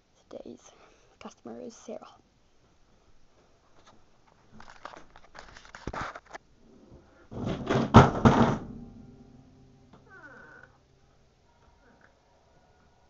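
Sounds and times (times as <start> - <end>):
rustling and knocking handling noise: 2.6 - 9.0.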